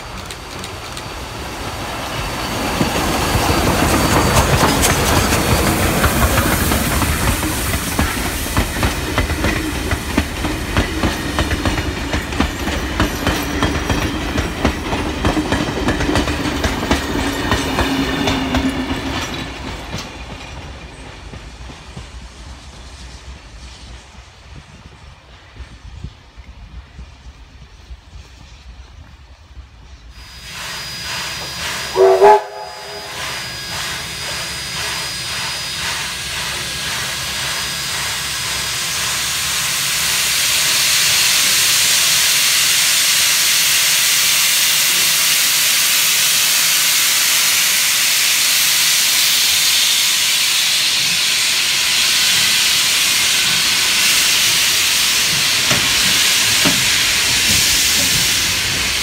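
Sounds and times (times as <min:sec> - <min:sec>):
steam hissing: 0:00.0 - 0:19.8, 0:30.1 - 0:59.0
steam whistle blast: 0:30.2 - 0:40.8.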